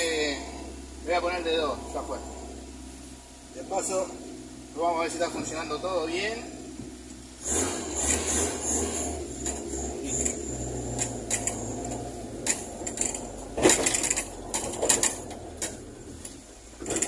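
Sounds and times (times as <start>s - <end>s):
car engine running: 0.0s - 17.0s
clicks and clunks rattling: 10.2s - 17.0s.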